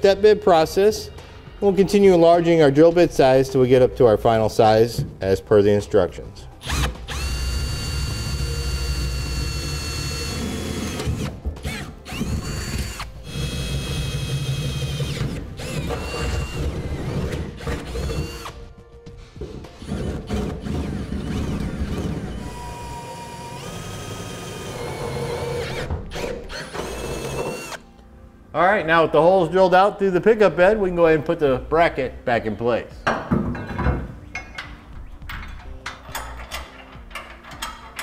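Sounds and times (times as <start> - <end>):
power drill cutting steel: 6.6 - 18.6, 22.3 - 27.8.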